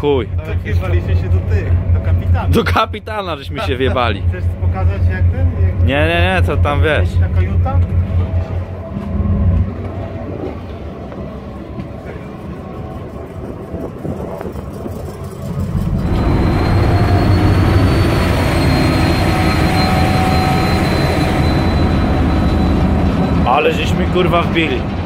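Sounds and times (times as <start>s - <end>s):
ferry engine drone: 0.0s - 25.0s
thin high whine: 11.4s - 25.0s.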